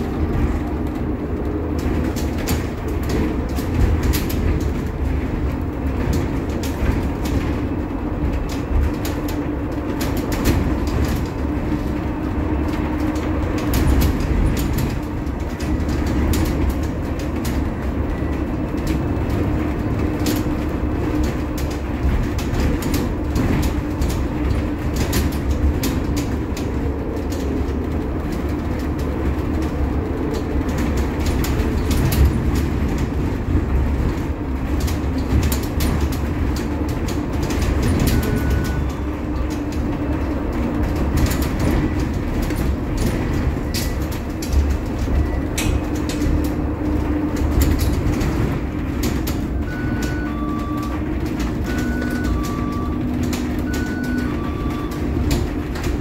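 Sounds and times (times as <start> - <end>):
body rattles and clicks: 0.0 - 56.0
bus road rumble: 0.0 - 56.0
two-tone beep: 49.7 - 51.0, 53.7 - 55.0.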